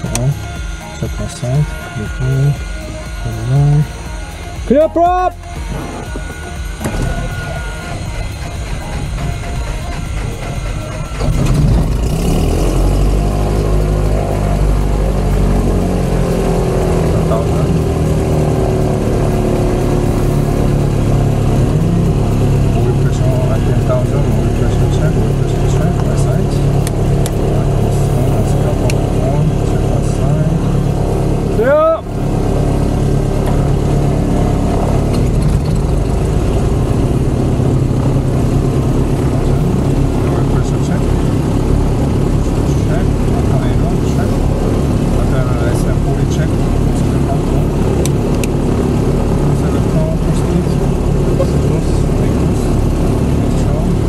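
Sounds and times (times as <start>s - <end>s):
aircraft engine starter cranking: 0.0s - 31.3s, 32.3s - 36.6s, 45.8s - 54.0s
piston aircraft engine running: 0.0s - 54.0s.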